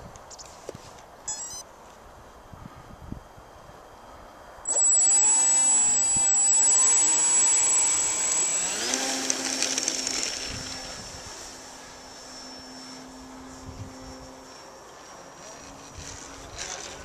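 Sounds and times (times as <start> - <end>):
model plane motor whining: 4.7 - 17.0.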